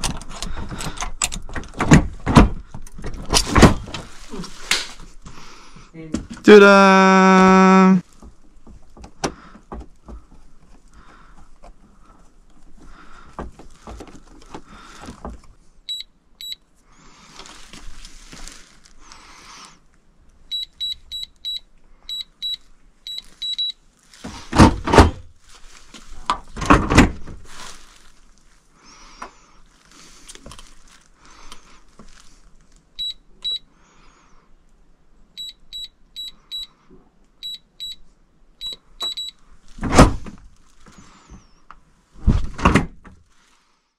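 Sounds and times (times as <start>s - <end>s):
keypad beeps: 38.6s - 39.4s.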